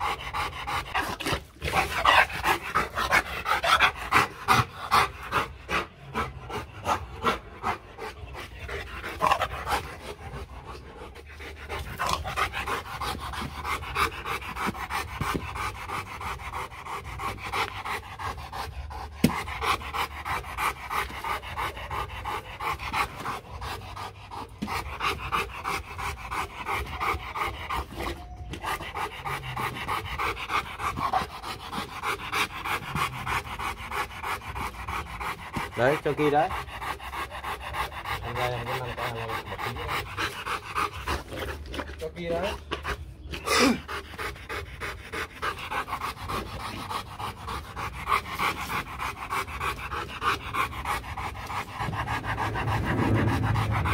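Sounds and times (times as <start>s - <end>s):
dog panting: 0.0s - 53.9s.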